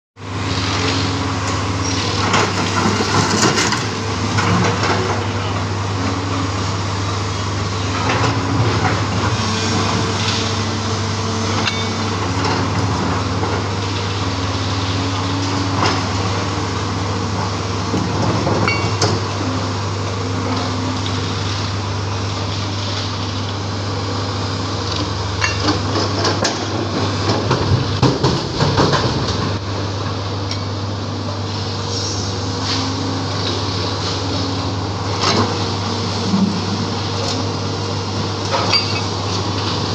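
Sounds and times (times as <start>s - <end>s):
excavator diesel engine running: 0.2s - 39.9s
rubble clattering and rumbling: 1.5s - 5.7s, 25.6s - 29.6s.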